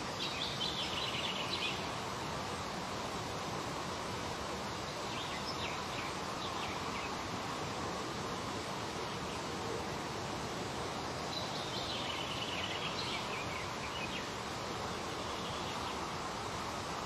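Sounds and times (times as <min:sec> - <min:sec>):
outdoor background hiss: 0:00.0 - 0:17.0.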